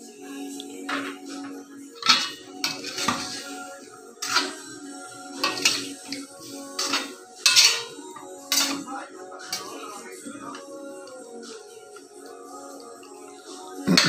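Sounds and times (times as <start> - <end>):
ladle scraping and clanking in wok: 0.9 - 1.3, 2.0 - 3.6, 4.2 - 4.6, 5.4 - 8.9.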